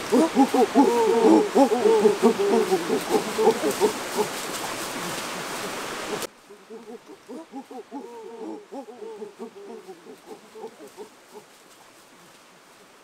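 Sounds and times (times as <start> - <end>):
chorus of animal calls: 0.0 - 4.4
steady hiss: 0.0 - 13.0.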